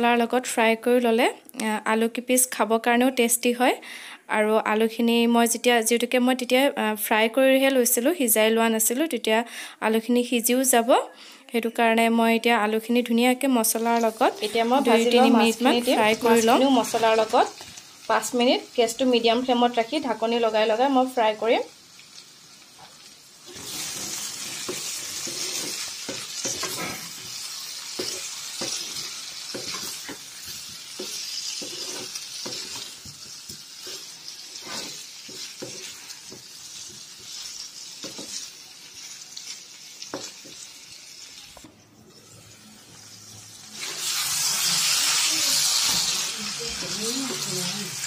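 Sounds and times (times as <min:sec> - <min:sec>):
food frying in oil: 0:12.6 - 0:48.0
spatula scraping a pan: 0:22.8 - 0:40.6, 0:43.8 - 0:47.6.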